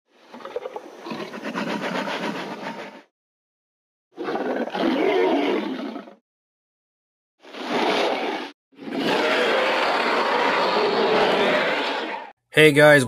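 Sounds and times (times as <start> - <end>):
dinosaur roar: 7.6 - 12.3.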